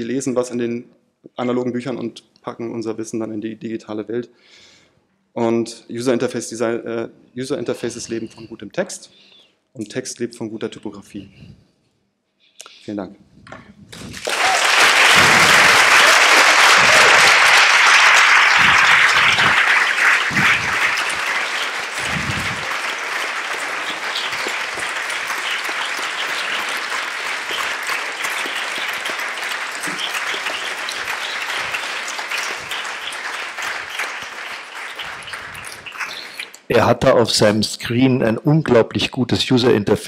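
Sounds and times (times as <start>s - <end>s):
audience applauding: 14.0s - 36.7s.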